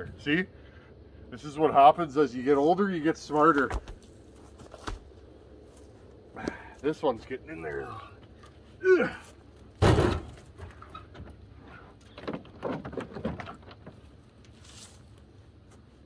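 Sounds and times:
man grunting with effort: 8.8 - 9.3
log thudding on tailgate: 9.8 - 10.8.

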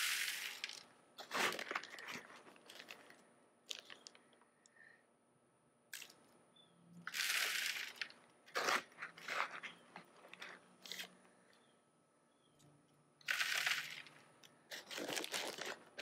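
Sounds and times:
gravel pouring onto wire mesh: 0.0 - 0.8, 7.1 - 8.1, 13.3 - 14.1.

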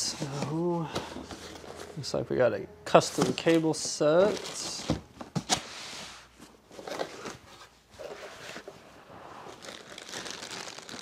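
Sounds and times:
plastic bags crinkling: 9.5 - 11.0.

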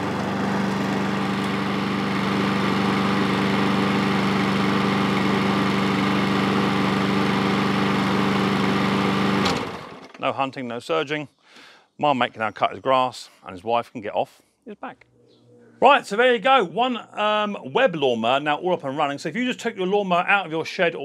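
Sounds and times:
lawnmower engine running: 0.0 - 10.2.

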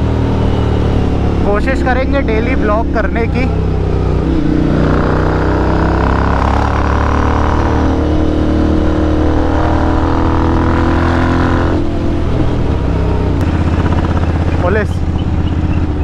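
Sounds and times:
motorcycle exhaust on light throttle: 11.8 - 16.0.

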